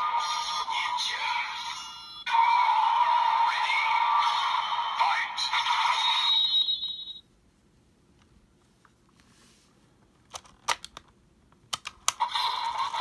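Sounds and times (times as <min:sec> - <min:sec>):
toy electronic sound effects: 0:00.0 - 0:07.2, 0:12.2 - 0:13.0
sharp plastic clicks: 0:10.3 - 0:12.2.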